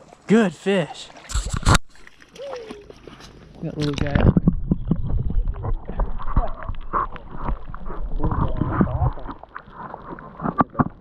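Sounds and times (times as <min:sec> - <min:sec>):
light water splashes: 0:00.0 - 0:11.0
muffled underwater water gurgling: 0:04.0 - 0:11.0.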